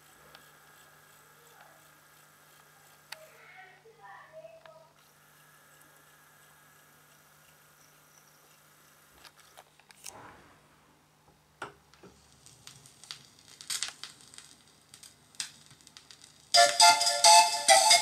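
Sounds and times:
vinyl surface clicks and pops: 0:11.9 - 0:16.8
music from record: 0:16.6 - 0:18.0.

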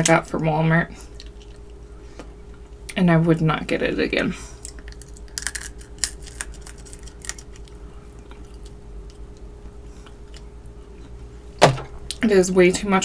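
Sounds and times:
steady low hum: 0:00.0 - 0:13.0
chewing and sucking at shell: 0:04.6 - 0:10.5.

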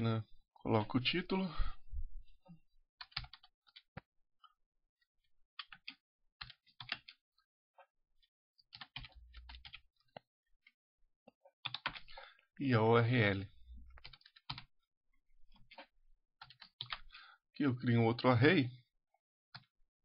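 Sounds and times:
keyboard typing: 0:03.0 - 0:04.0, 0:05.6 - 0:07.2, 0:08.7 - 0:10.2, 0:11.4 - 0:12.2, 0:14.0 - 0:14.7, 0:15.5 - 0:17.1.

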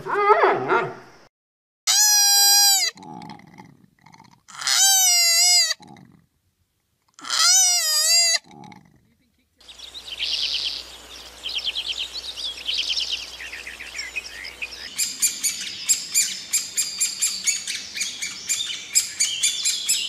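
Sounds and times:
trilled high bird chirps: 0:09.6 - 0:20.0
rapid clicking bird calls: 0:14.0 - 0:20.0.

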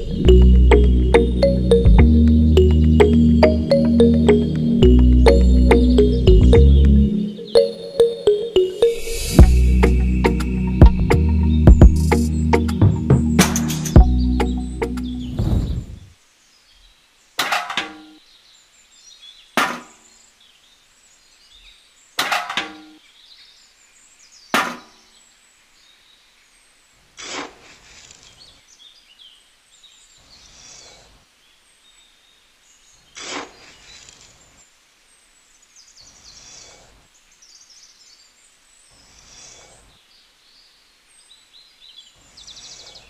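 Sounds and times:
rustling hiss: 0:09.0 - 0:22.3, 0:23.2 - 0:43.0.

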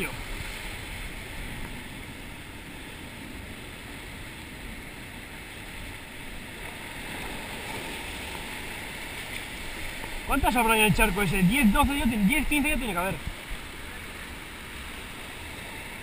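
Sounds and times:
sea waves on rocks: 0:00.0 - 0:16.0.

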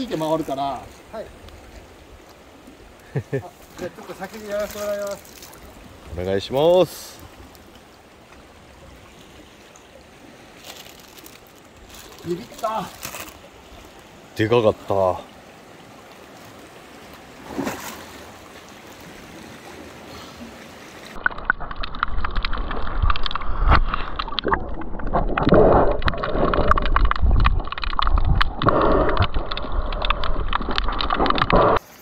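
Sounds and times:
faint steady hiss: 0:00.0 - 0:21.2
water sloshing and gurgling: 0:00.0 - 0:32.0.

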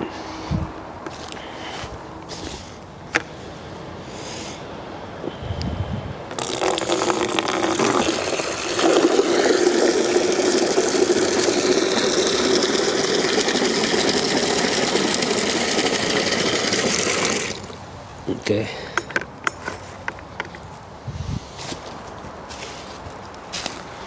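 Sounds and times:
water pouring into plastic bucket: 0:06.3 - 0:17.8.

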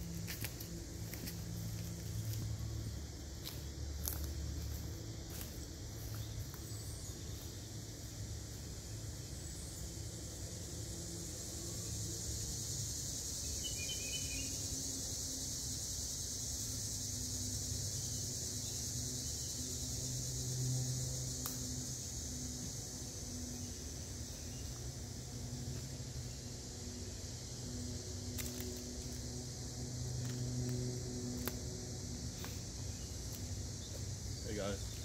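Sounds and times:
steady low hum: 0:00.0 - 0:13.6
bird chirp: 0:13.5 - 0:14.6.

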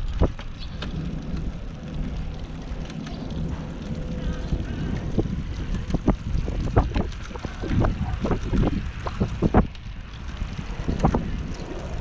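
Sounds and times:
low riding rumble: 0:00.0 - 0:12.0
wind buffeting microphone: 0:00.0 - 0:12.0.

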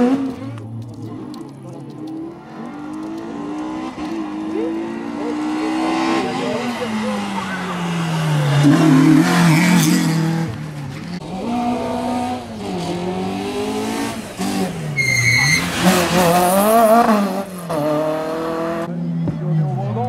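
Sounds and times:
car engines revving: 0:00.0 - 0:20.0
tyre squeal: 0:14.9 - 0:16.0.

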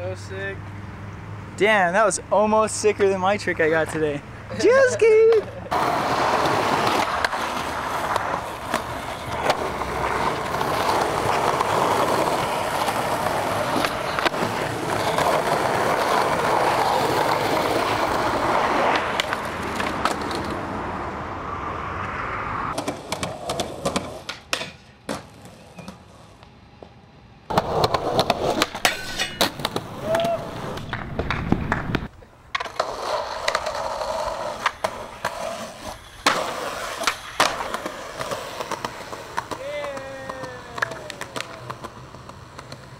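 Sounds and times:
skateboard wheels rolling: 0:02.7 - 0:42.9
skateboard pops and landings: 0:05.3 - 0:20.6, 0:22.7 - 0:26.0, 0:27.5 - 0:42.9.

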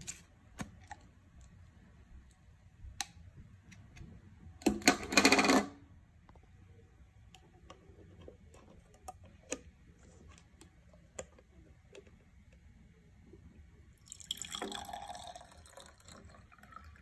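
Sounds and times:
liquid pouring into glass: 0:14.0 - 0:17.0.

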